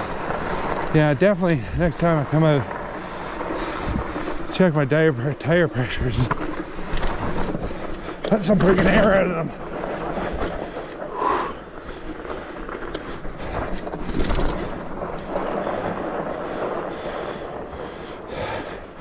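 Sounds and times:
bike rattling over bumps: 0.0s - 19.0s
bike tyres on rough trail: 0.0s - 19.0s
wind on microphone: 3.4s - 4.5s.

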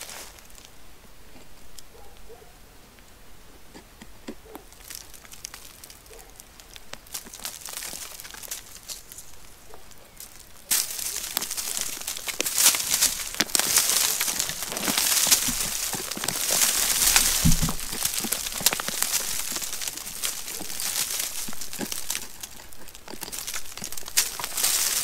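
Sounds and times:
grit crackling: 3.0s - 25.0s
hands scraping rock: 3.6s - 9.5s, 10.2s - 25.0s
dull low bump: 14.6s - 20.6s.

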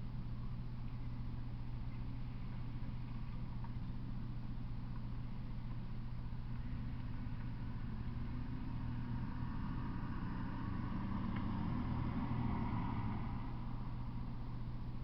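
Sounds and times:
steady low hum: 0.0s - 15.0s
distant vehicle rumbling: 6.4s - 15.0s.

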